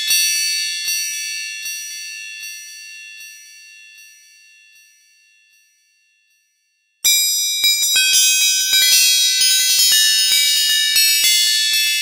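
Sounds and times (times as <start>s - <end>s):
wind chimes ringing: 7.1s - 12.0s.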